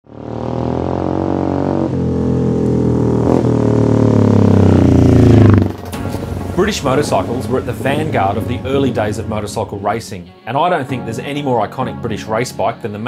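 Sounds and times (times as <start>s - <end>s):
racing motorcycle engine passing: 0.0s - 9.9s.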